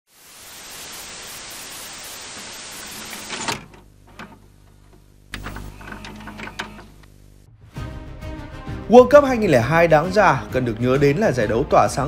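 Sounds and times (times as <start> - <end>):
static hiss: 0.1 - 4.3, 5.1 - 7.5.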